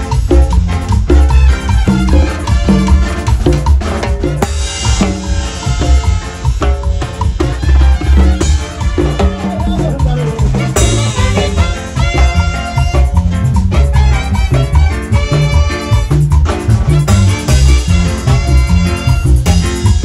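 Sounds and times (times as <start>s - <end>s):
brass band horns: 0.0s - 20.0s
drum beat: 0.0s - 20.0s.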